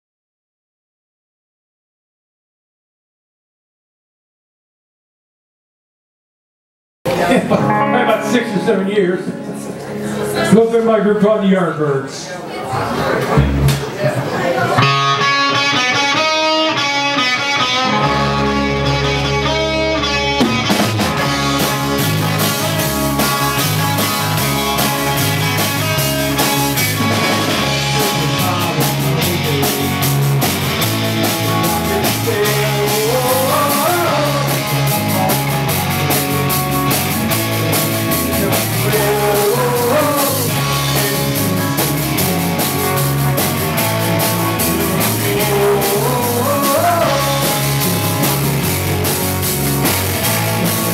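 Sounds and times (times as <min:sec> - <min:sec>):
electric guitar riff: 0:07.1 - 0:10.6, 0:13.2 - 0:14.0, 0:14.7 - 0:50.9
drums and bass: 0:13.2 - 0:50.9
person singing: 0:21.6 - 0:26.4, 0:27.0 - 0:30.2, 0:31.0 - 0:35.8, 0:38.2 - 0:43.5, 0:44.2 - 0:48.4.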